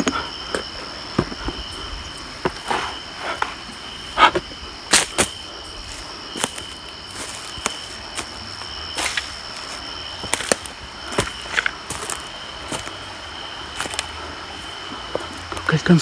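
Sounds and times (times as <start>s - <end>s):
footsteps on rocks: 0.0s - 13.1s, 13.7s - 15.7s
night insects chirping: 0.0s - 16.0s.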